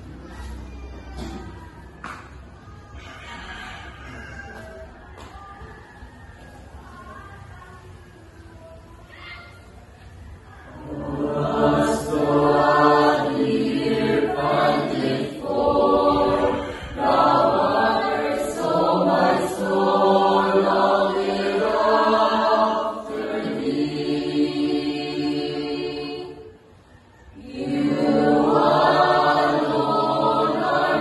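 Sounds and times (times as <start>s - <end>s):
church choir singing: 10.7s - 31.0s.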